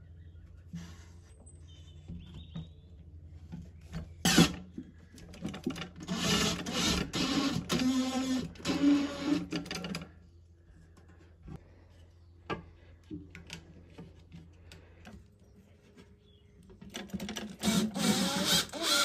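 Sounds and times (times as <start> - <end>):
cordless driver motor running: 6.0 - 9.6, 17.5 - 19.0.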